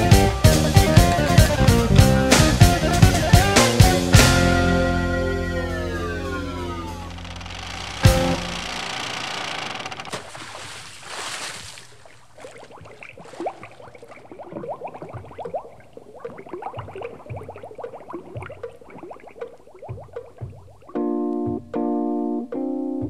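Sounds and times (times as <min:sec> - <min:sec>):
water lapping against shore: 0:07.8 - 0:21.1
small water plops and glugs: 0:10.1 - 0:21.7.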